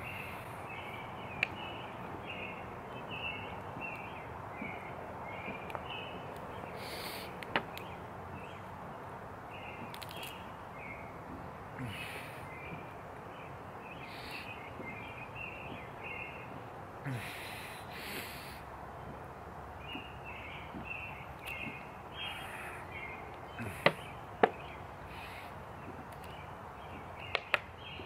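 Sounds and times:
small birds chirping: 0.0 - 28.0
sharp clicks: 26.1 - 26.4, 27.3 - 27.7.

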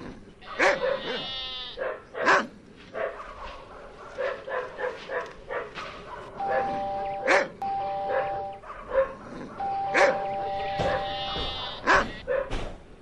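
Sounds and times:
animal bleating: 0.4 - 1.8, 9.8 - 12.3
short yelping bark-like calls: 0.4 - 2.4, 3.0 - 12.5.

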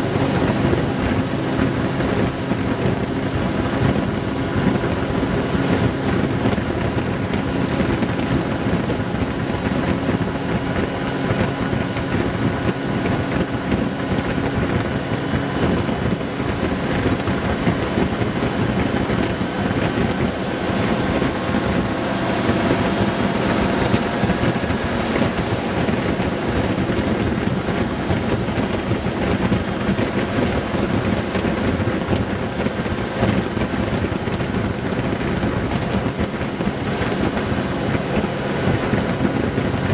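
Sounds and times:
motorcycle engine running steadily: 0.0 - 39.9
wind rush on microphone: 0.0 - 39.9
road noise: 9.9 - 33.7.

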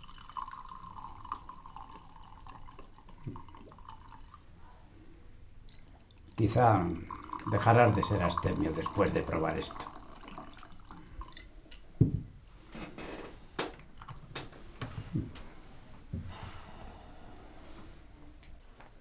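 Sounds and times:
liquid pouring into glasses: 0.0 - 4.4, 5.7 - 11.6.

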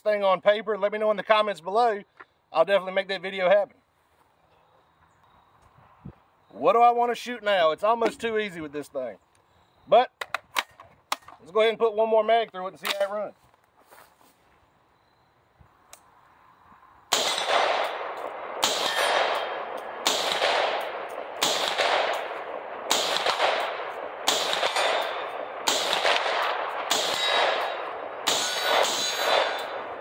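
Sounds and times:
rifle shots: 17.1 - 30.0
steel target clanging: 26.9 - 29.9.

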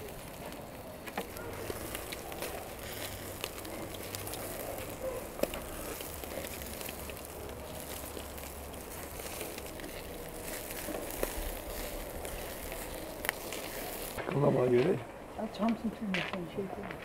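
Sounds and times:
fire crackling: 0.0 - 17.0.

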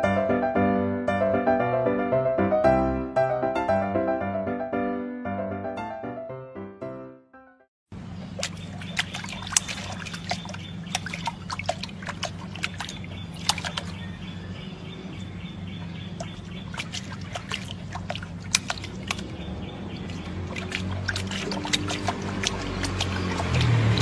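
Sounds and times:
water splashing and dripping: 8.2 - 14.3, 15.6 - 24.0.

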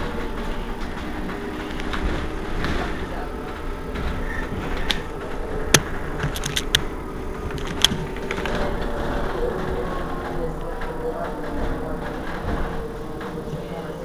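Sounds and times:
electric bus humming: 0.0 - 14.0
sharp clicks and knocks: 0.2 - 8.9.

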